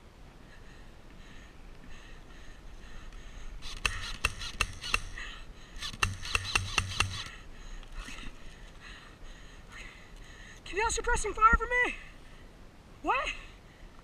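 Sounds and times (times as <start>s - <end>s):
airsoft rifle shots: 3.6s - 7.4s.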